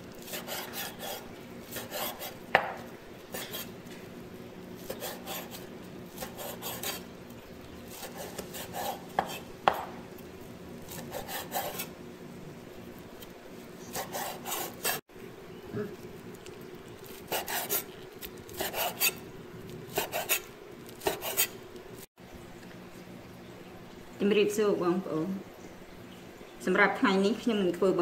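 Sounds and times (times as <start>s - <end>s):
cleaver slicing on wooden board: 8.0s - 9.9s.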